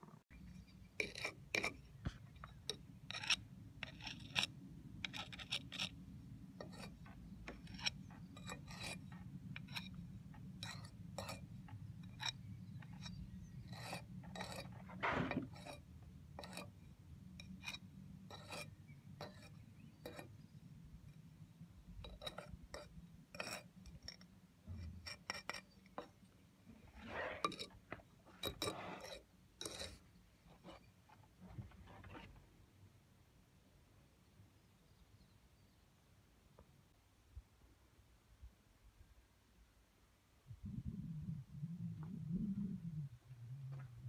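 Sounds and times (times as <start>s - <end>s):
jointing iron scraping brick mortar: 0.6s - 20.4s, 22.0s - 32.4s
steady low hum: 40.4s - 44.0s.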